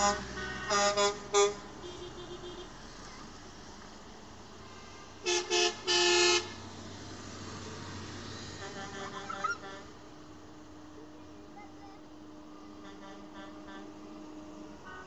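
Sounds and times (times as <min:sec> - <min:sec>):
vehicle horn tooting: 0:00.0 - 0:02.8, 0:05.2 - 0:06.6
passing tractors and trucks: 0:00.0 - 0:15.0.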